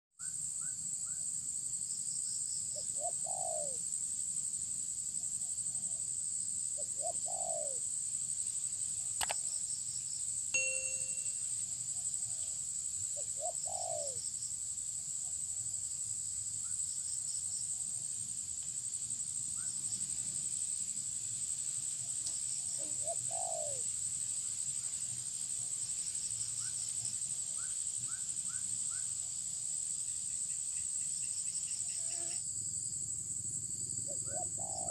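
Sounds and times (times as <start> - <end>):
doves cooing: 3.0 - 3.8, 6.8 - 7.8, 13.4 - 14.2, 22.6 - 23.9, 34.2 - 34.9
high-pitched insect drone: 10.6 - 11.9, 31.2 - 32.5
faint small-bird chirps: 10.6 - 12.4.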